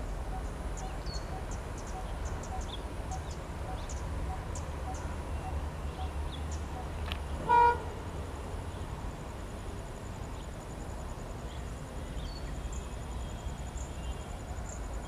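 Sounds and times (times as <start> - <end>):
low train rumble: 0.0 - 15.0
bird chirps: 0.2 - 7.5
locomotive horn blast: 7.4 - 8.0.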